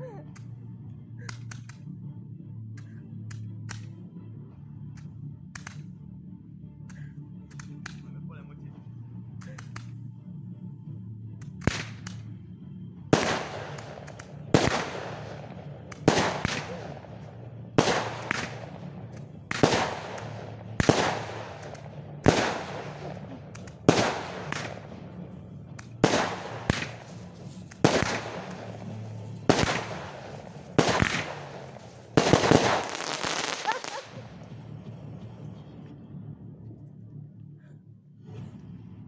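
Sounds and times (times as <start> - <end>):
fireworks bangs: 13.2 - 25.0, 25.9 - 34.2.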